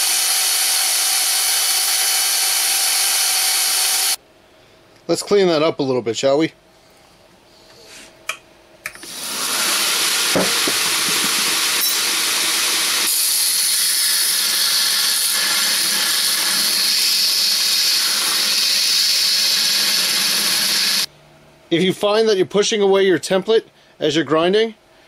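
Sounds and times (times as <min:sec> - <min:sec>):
belt grinder grinding metal: 0:00.0 - 0:04.2, 0:09.0 - 0:21.1.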